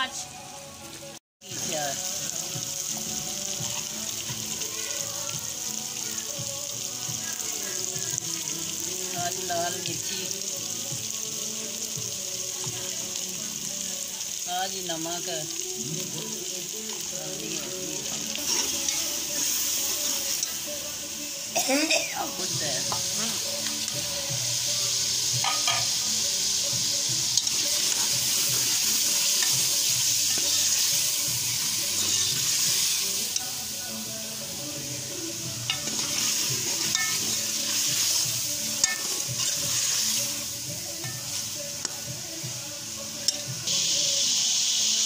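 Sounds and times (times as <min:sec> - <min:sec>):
food sizzling in a pot: 0:00.0 - 0:45.0
ladle clinking against pot: 0:25.4 - 0:25.9, 0:36.9 - 0:37.2
ladle stirring: 0:35.7 - 0:40.1.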